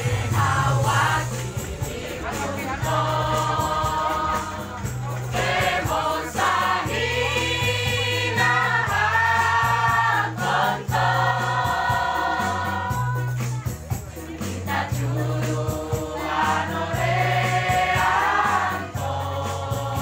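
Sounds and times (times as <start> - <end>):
women's choir singing: 0.0 - 13.4, 14.0 - 20.0
low bass notes: 0.0 - 13.9.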